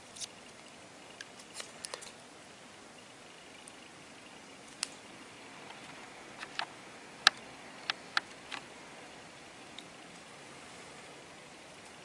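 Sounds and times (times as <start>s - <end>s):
small sharp clicks and taps: 6.4s - 8.7s.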